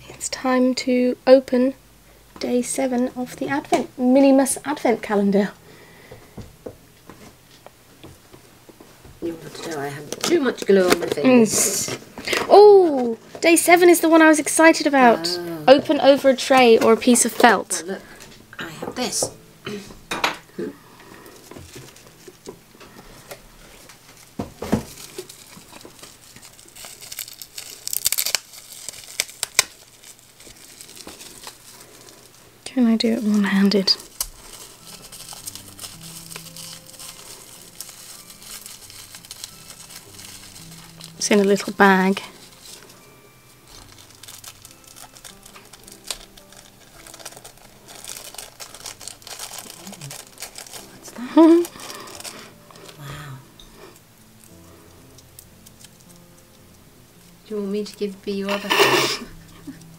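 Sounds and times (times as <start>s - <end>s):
plastic bag crinkling: 9.2s - 18.3s, 20.6s - 53.1s, 53.8s - 56.7s, 57.8s - 59.9s.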